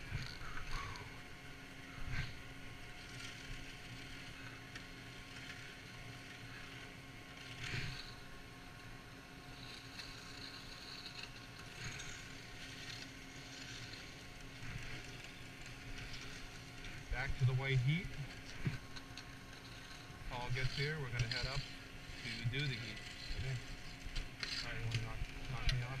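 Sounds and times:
chairlift machinery humming: 0.0s - 26.0s.

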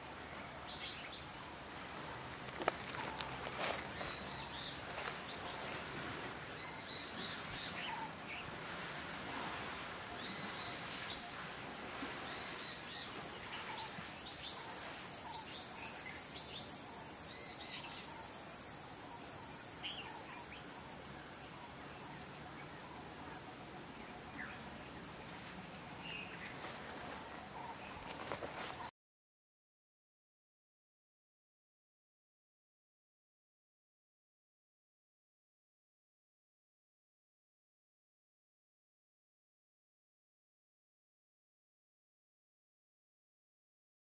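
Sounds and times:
outdoor hiss: 0.0s - 28.9s
birds chirping: 0.4s - 28.9s.

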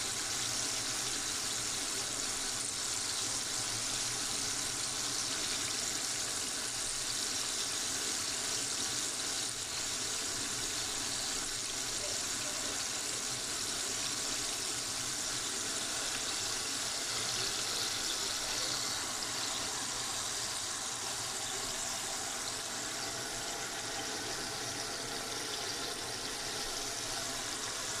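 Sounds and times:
chicken deep-frying in oil: 0.0s - 28.0s.

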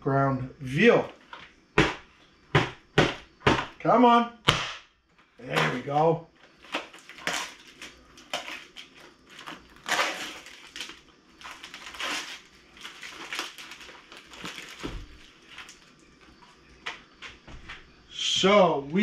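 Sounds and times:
plastic packaging crinkling: 6.4s - 16.4s.

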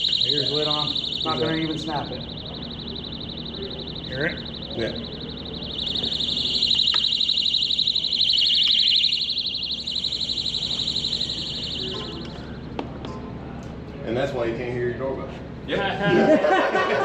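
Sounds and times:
muffled pulsing alarm buzzer: 0.0s - 12.8s.

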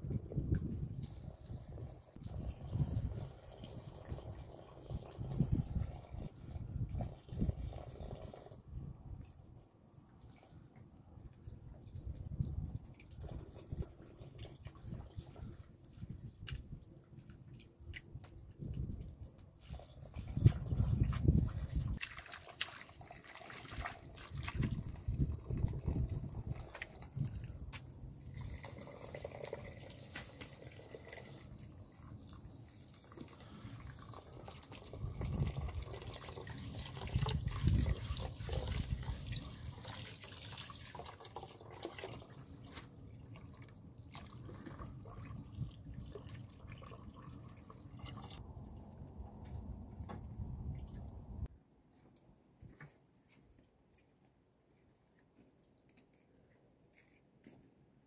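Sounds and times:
water splashing while rinsing: 19.6s - 48.4s
water trickling from tap: 20.0s - 48.4s.

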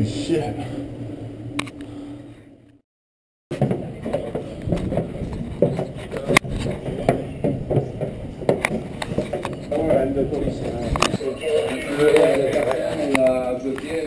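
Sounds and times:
steady low hum: 0.0s - 2.8s
scattered knocks and clicks: 3.5s - 14.0s.

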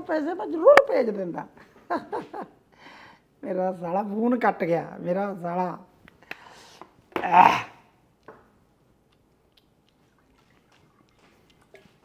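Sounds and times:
man's vocal outburst: 7.2s - 7.9s.

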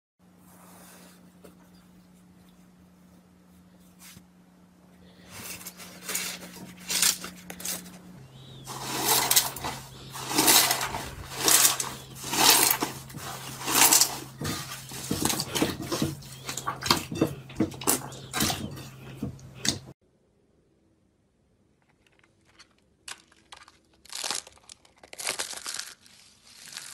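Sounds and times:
faint steady hum: 0.2s - 26.6s
slime squelching: 21.8s - 26.9s.

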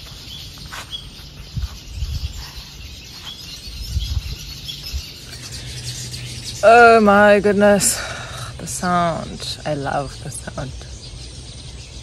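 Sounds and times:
birds chirping: 0.0s - 12.0s
low rumbles: 3.6s - 12.0s.

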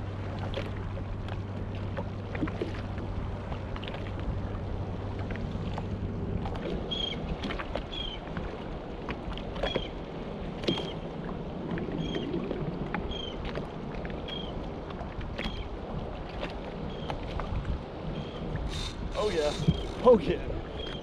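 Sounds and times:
water lapping against hull: 0.0s - 21.0s
wind on microphone: 9.5s - 21.0s.

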